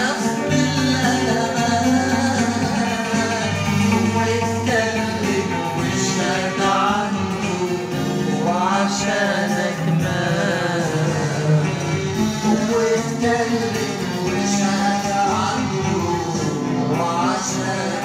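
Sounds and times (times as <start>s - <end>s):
man singing a hymn: 0.0s - 18.0s
accordion bass and drums: 0.4s - 8.6s.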